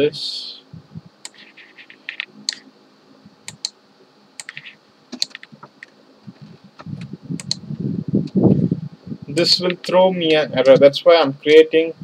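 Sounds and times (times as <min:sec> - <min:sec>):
computer keyboard keys clicking: 0:04.4 - 0:05.5, 0:07.4 - 0:07.6.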